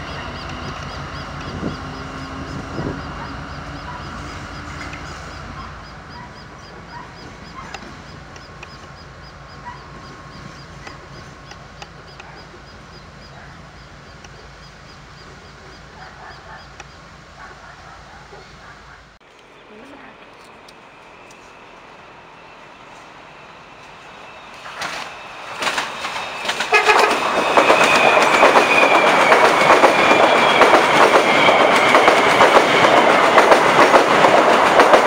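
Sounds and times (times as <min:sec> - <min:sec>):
diesel locomotive engine: 0:00.0 - 0:35.0
scattered ticks: 0:02.9 - 0:17.0.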